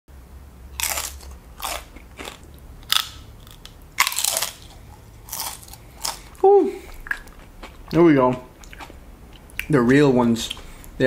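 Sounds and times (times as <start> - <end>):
chips crunching while chewed: 0.8 - 8.0.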